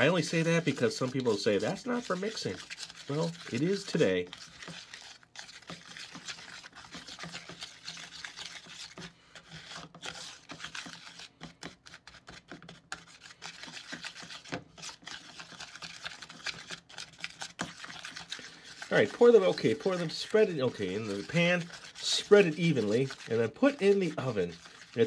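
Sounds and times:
spatula scraping batter in bowl: 0.0s - 25.0s.

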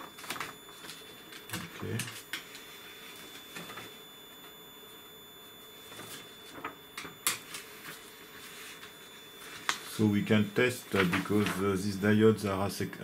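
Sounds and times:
paper sheets rustling: 0.0s - 4.0s, 5.8s - 12.0s
faint high-pitched tone: 0.0s - 13.0s.

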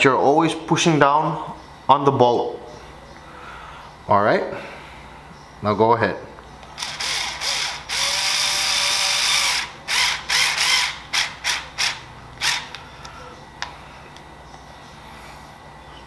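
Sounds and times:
electric screwdriver running: 6.8s - 12.8s.

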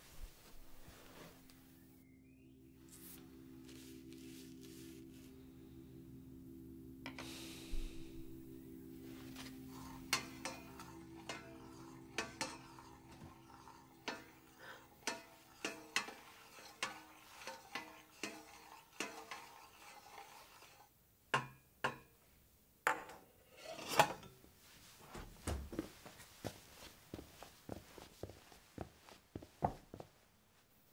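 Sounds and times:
footsteps: 0.0s - 1.8s, 24.6s - 30.7s
low sustained music tone: 0.1s - 19.0s
dishes and cutlery clattering: 9.7s - 19.6s, 22.9s - 24.4s.

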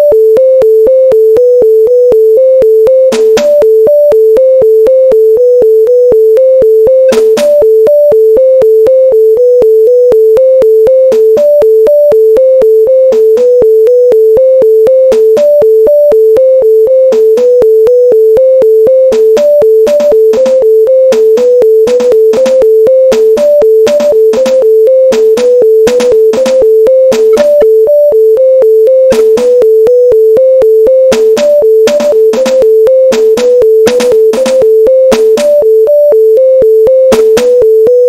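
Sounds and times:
drum-machine hits: 3.1s - 3.7s, 7.1s - 7.7s, 11.1s - 11.6s, 15.1s - 15.6s, 17.1s - 17.6s, 19.1s - 27.8s, 29.1s - 29.6s, 31.1s - 35.7s, 37.1s - 37.7s
synthesizer music: 19.1s - 27.9s, 29.0s - 30.0s.

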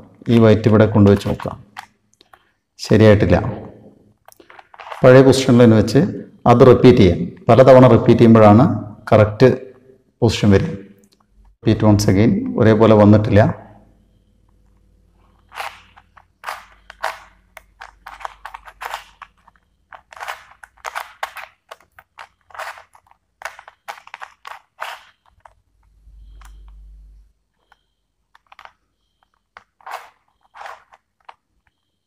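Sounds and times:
plastic cube clicking: 4.2s - 5.1s, 15.4s - 26.8s, 27.6s - 31.9s.

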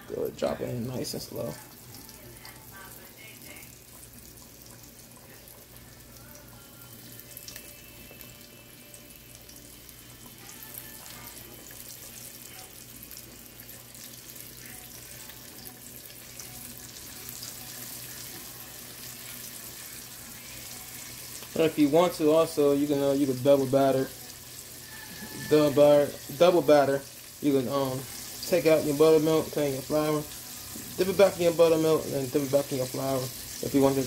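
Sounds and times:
chicken frying in hot oil: 0.0s - 34.0s.

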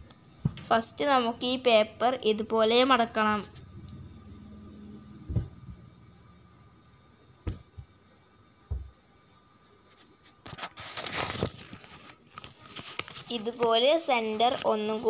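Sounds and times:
paper crinkling: 9.9s - 15.0s.

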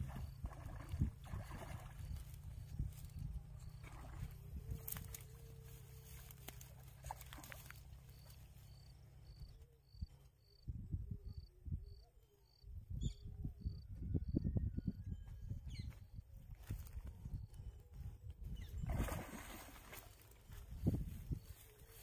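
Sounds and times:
insect chirping: 0.1s - 10.7s.

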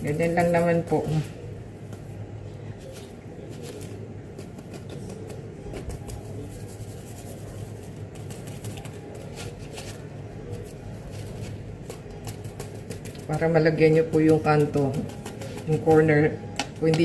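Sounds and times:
crumbs scratching through wire strainer: 2.8s - 16.2s.

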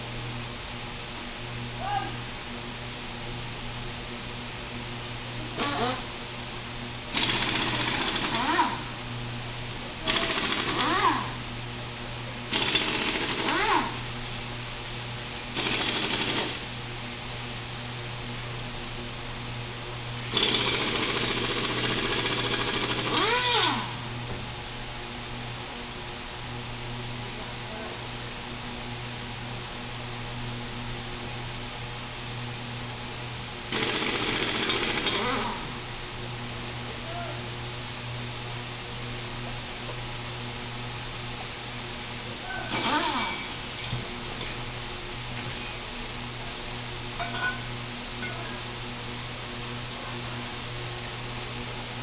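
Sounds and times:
steady low hum: 0.0s - 52.0s
impact wrench bursts: 5.6s - 6.1s, 7.1s - 8.8s, 10.0s - 11.3s, 12.5s - 14.0s, 15.2s - 16.6s, 20.2s - 24.2s, 33.7s - 35.8s, 42.7s - 44.0s
mechanical tool noise: 20.3s - 24.1s, 42.7s - 44.0s.

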